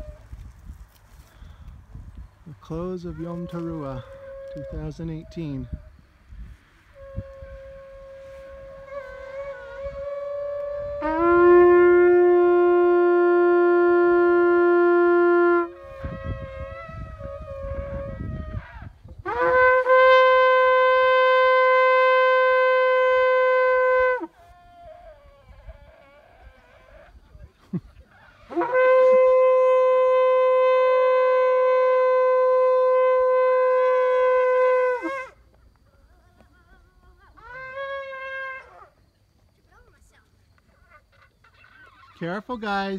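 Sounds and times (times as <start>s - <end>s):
faint higher shofar: 3.2s - 5.9s, 6.9s - 27.1s, 28.5s - 35.4s
shofar long note: 3.3s - 5.0s, 6.9s - 24.5s, 28.5s - 35.4s.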